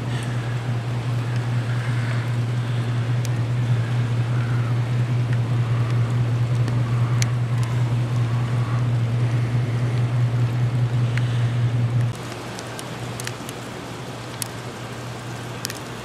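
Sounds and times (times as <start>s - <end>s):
freezing rain falling: 0.0s - 16.0s
steady low hum: 0.0s - 16.0s
faint ticks: 0.1s - 9.0s, 12.0s - 13.7s, 14.3s - 16.0s.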